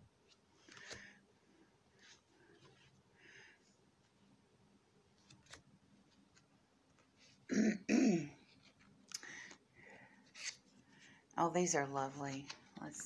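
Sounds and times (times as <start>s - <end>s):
woman clearing throat: 7.5s - 8.4s.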